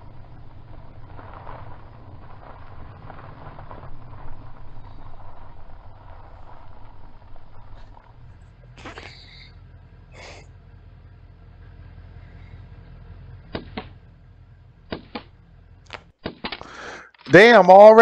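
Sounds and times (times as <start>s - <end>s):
truck engine running low: 0.0s - 17.2s
bullets striking a window: 13.5s - 14.0s, 14.9s - 15.3s, 16.2s - 16.7s.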